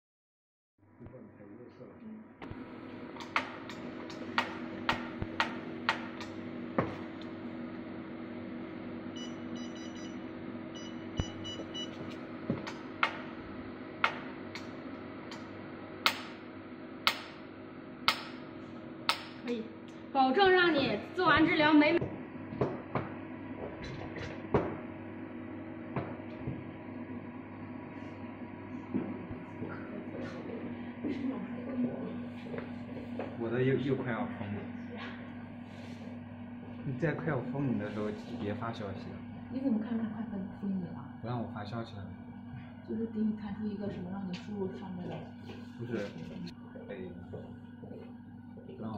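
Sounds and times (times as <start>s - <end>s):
machine hum: 0.9s - 48.9s
short electronic beeps: 10.8s - 12.0s.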